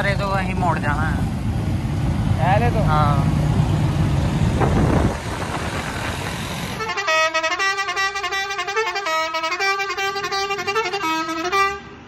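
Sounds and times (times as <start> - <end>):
musical vehicle horn tune: 6.8 - 12.0.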